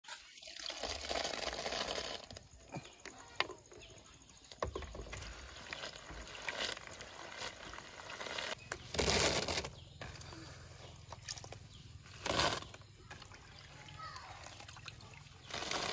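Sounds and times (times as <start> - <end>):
water splashing: 11.1 - 15.9.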